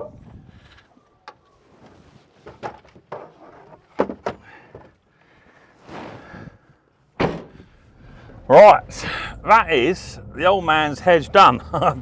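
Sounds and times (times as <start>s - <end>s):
knocks and thuds: 3.9s - 4.9s, 7.2s - 7.7s.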